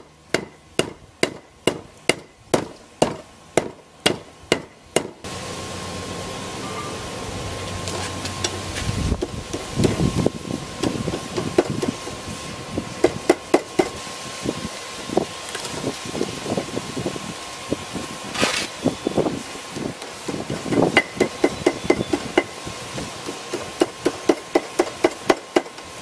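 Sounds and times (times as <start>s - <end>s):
steady hum: 0.0s - 26.0s
hammer striking metal on anvil: 0.3s - 5.2s.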